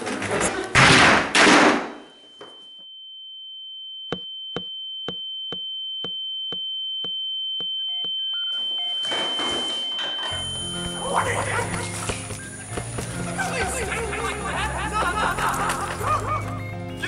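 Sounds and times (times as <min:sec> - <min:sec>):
high steady ringing tone: 0:01.9 - 0:12.7
footsteps on wooden floor: 0:10.4 - 0:14.8.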